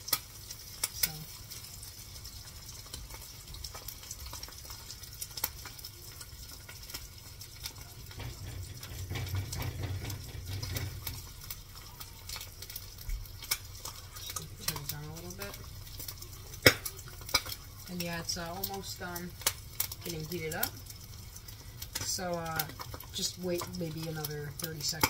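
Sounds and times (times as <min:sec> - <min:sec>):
egg sizzling in a pan: 0:00.0 - 0:25.0
small pops and crackles: 0:00.0 - 0:25.0.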